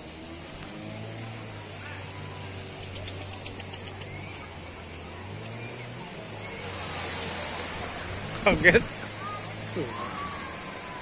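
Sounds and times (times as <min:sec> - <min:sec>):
faint clicks: 0:02.8 - 0:04.2.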